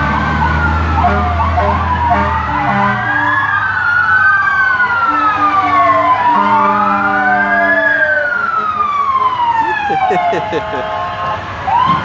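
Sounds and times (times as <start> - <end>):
fire truck sirens wailing: 0.0 - 12.0
low horn-like tone: 1.0 - 3.3, 5.1 - 7.6.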